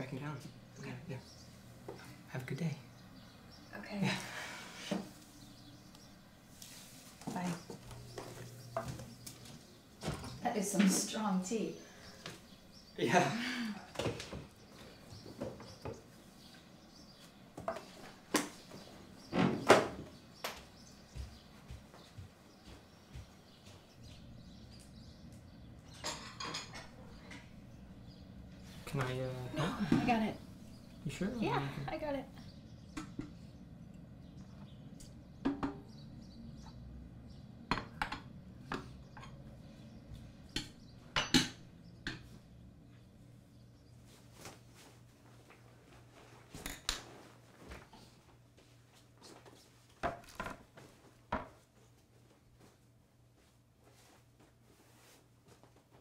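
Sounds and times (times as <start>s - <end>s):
soft footsteps: 5.0s - 11.3s, 20.0s - 25.9s, 43.8s - 50.0s, 50.6s - 56.0s
crockery clinking: 25.9s - 27.6s
objects knocking on tabletop: 35.4s - 35.8s.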